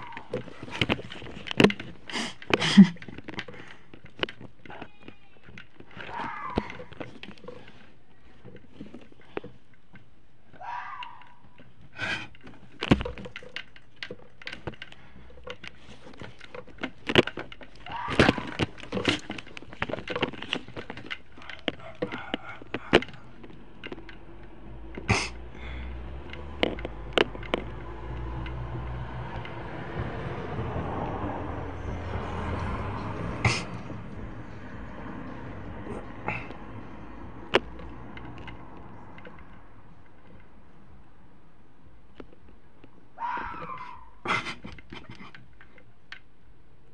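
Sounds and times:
clicks and knocks: 0.0 - 10.1, 11.0 - 31.3
vehicle passing: 21.4 - 41.2.

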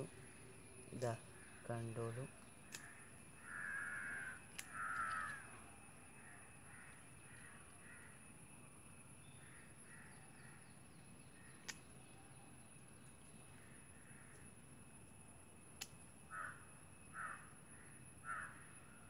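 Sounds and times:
crow cawing: 1.4 - 5.6, 6.2 - 8.2, 9.4 - 10.6, 13.6 - 14.4, 16.3 - 18.8
sharp click: 2.7 - 2.9, 4.5 - 5.4.

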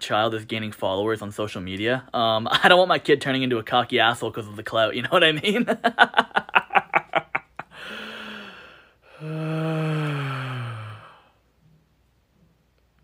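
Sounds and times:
man laughing: 5.1 - 7.9
breathy gasp: 7.7 - 11.4
long voiced exhale: 7.7 - 11.4.

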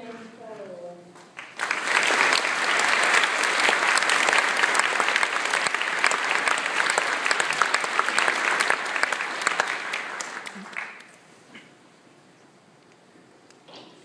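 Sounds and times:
large audience applauding: 1.4 - 11.2.

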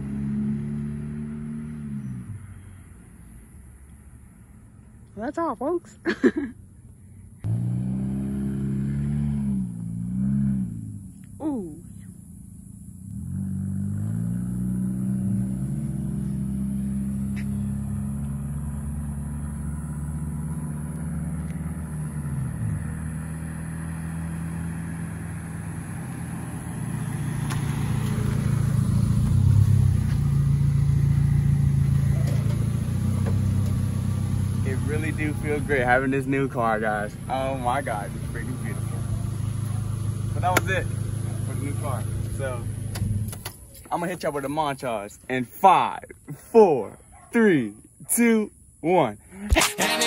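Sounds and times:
loud car engine exhaust: 0.0 - 3.1, 7.3 - 43.3.

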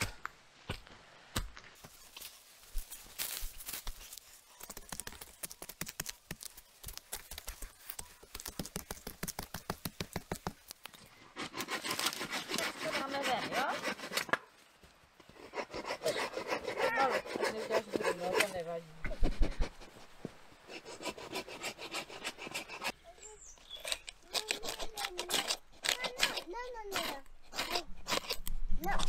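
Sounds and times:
hand saw cutting wood: 11.3 - 14.4, 15.4 - 18.6, 20.7 - 23.0, 23.8 - 28.5.

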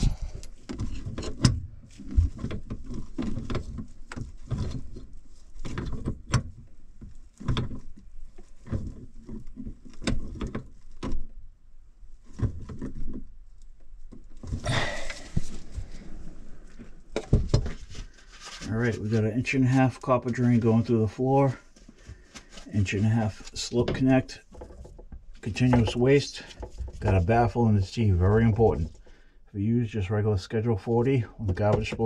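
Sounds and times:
scraping rustle: 0.0 - 11.4, 12.0 - 29.0.

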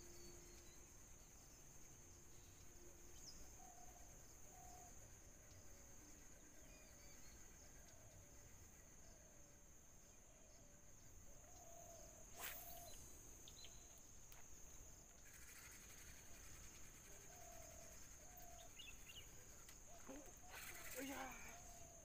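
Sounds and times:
high insect drone: 0.0 - 22.0
soft bird calls: 14.7 - 22.0.

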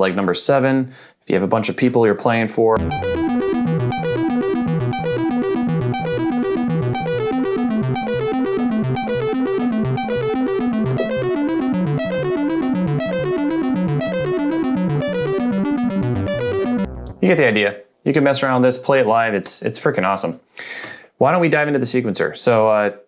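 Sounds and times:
synthesizer arpeggio: 2.8 - 17.4.

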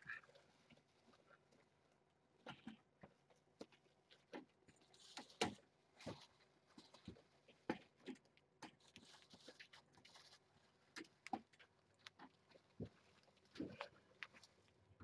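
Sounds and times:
absorbent pad crinkling: 4.8 - 14.8.

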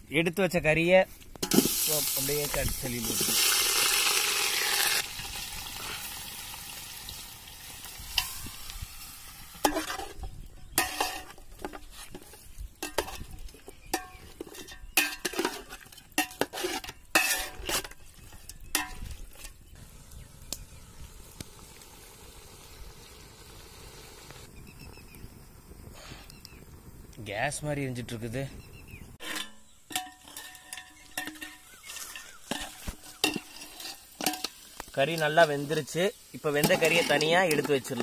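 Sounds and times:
chicken sizzling in oil: 1.5 - 14.3, 15.0 - 25.0, 31.8 - 38.0
metal ladle scraping a pot: 9.5 - 19.6, 29.2 - 35.6, 36.6 - 38.0.

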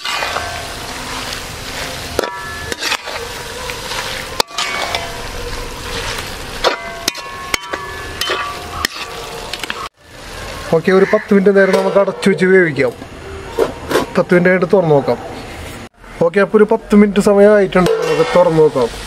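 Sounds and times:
spatula scraping and knocking pan: 0.0 - 1.4, 2.1 - 9.9
food sizzling in metal pan: 0.0 - 13.2, 17.3 - 19.0.

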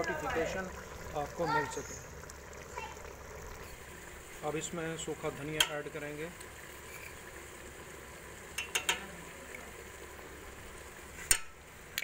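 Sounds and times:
faint hiss of food cooking: 0.0 - 12.0
spoon knocking metal pot: 8.6 - 9.1.

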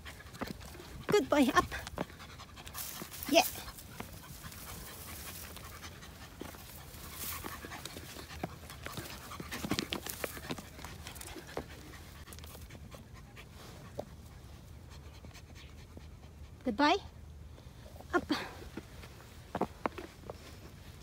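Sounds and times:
footsteps on stone: 0.0 - 12.6, 18.8 - 20.6
dog panting: 0.0 - 16.8.

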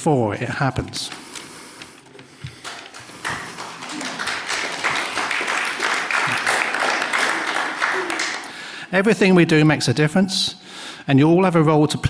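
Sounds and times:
audience applauding: 2.4 - 8.8.

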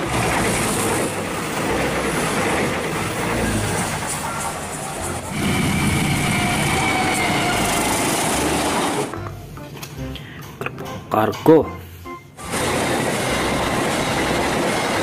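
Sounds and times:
train rushing rumble: 0.0 - 9.1, 12.4 - 15.0
high whine: 0.0 - 9.5
diesel locomotive rumble: 0.0 - 9.6, 12.4 - 15.0.

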